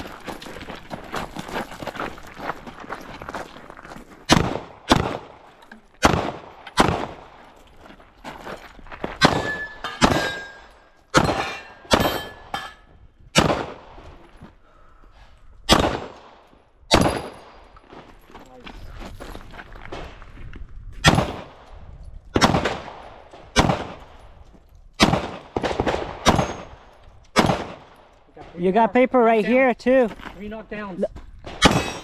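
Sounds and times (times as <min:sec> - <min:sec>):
footsteps on gravel: 0:00.0 - 0:06.0, 0:07.0 - 0:12.4, 0:17.3 - 0:21.1, 0:29.4 - 0:32.0
steel targets ringing: 0:09.3 - 0:12.8, 0:31.7 - 0:32.0.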